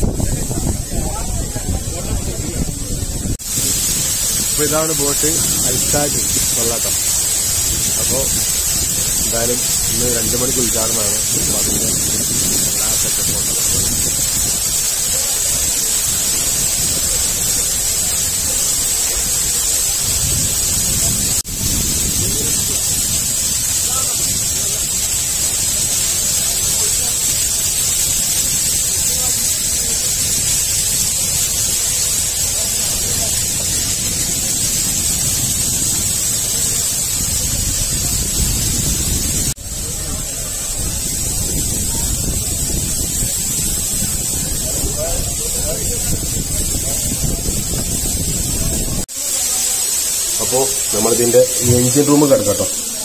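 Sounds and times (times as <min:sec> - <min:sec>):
wind buffeting microphone: 0:00.0 - 0:49.1.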